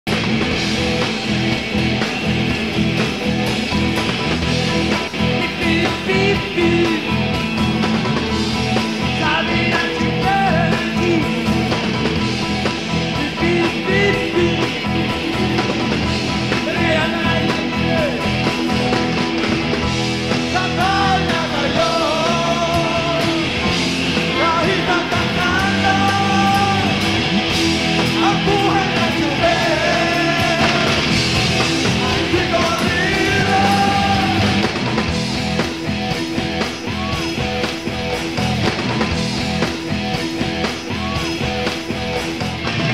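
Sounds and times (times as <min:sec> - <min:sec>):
electric guitars: 0:00.0 - 0:42.9
drum kit beat: 0:00.1 - 0:42.9
person singing: 0:05.2 - 0:07.2, 0:09.0 - 0:11.8, 0:13.1 - 0:15.0, 0:20.3 - 0:27.2, 0:28.0 - 0:34.8.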